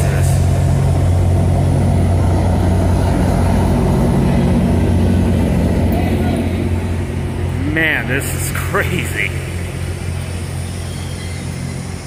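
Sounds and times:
diesel locomotive engine drone: 0.0 - 12.0.

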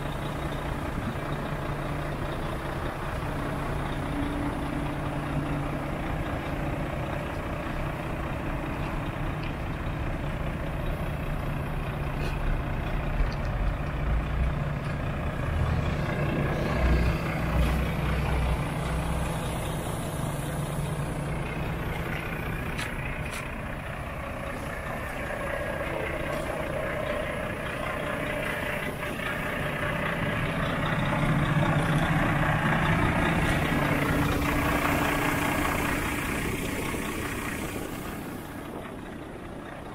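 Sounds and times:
truck diesel engine idling: 0.0 - 39.9.

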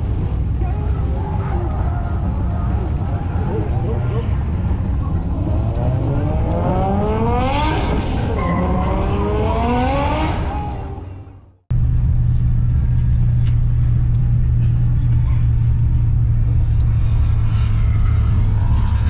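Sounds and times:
cars revving and accelerating: 0.0 - 19.0
truck engine droning in cab: 10.2 - 19.0.

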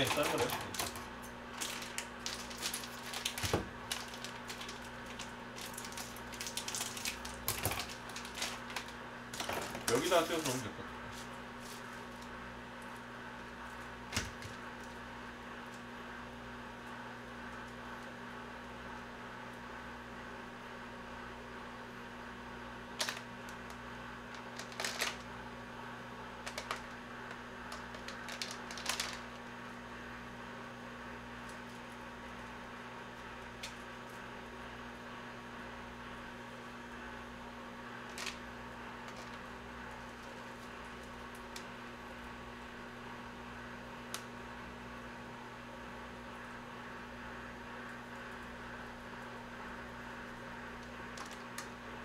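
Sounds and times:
scissors snipping plastic: 0.0 - 1.0
plastic packets crinkling: 0.0 - 10.6, 24.4 - 25.3, 26.4 - 27.0, 27.7 - 29.5, 38.1 - 38.4
dry noodles crackling and snapping: 0.0 - 16.0, 22.9 - 25.4, 26.3 - 29.8, 30.6 - 35.0, 37.9 - 42.4, 44.0 - 44.4, 47.8 - 51.9
steady low hum: 0.0 - 52.0.

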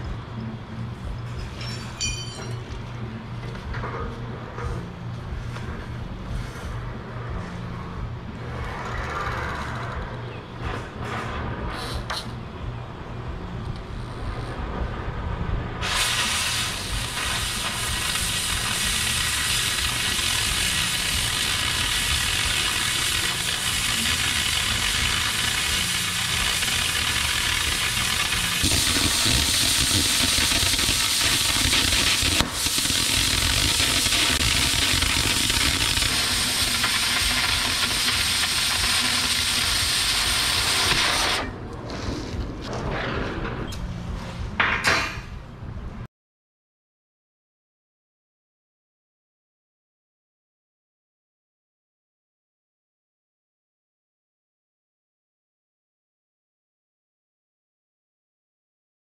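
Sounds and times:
cutting torch hissing: 15.8 - 41.5.

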